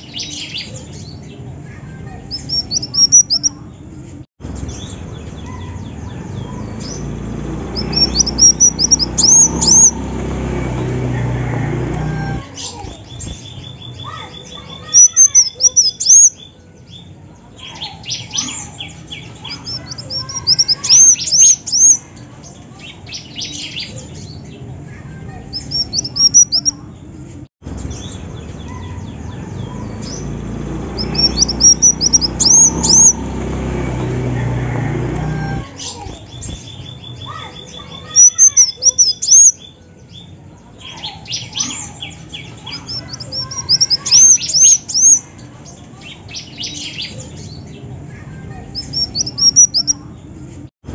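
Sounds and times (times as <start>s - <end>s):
sunbird chirping: 2.2s - 3.7s, 4.5s - 11.1s, 12.3s - 22.1s, 25.5s - 26.8s, 27.7s - 34.0s, 35.6s - 47.7s, 48.8s - 50.1s.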